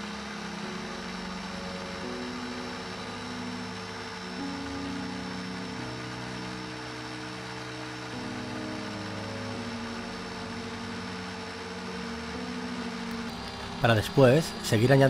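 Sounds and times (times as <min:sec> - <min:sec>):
food processor motor humming: 0:00.0 - 0:15.0.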